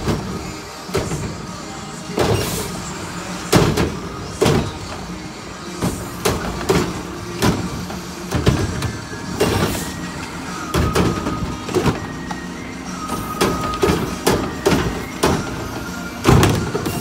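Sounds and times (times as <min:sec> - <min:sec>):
sharp bangs of carts and lids: 0:00.0 - 0:01.5, 0:02.1 - 0:02.8, 0:03.4 - 0:05.2, 0:05.8 - 0:10.0, 0:10.6 - 0:12.2, 0:13.1 - 0:17.0
garbage truck cart arm tipping carts: 0:00.0 - 0:17.0
truck engine and hydraulics running: 0:00.0 - 0:17.0.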